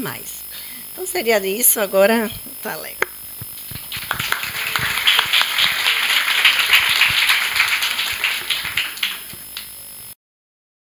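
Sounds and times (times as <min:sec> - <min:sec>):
audience applauding: 0:03.0 - 0:09.9.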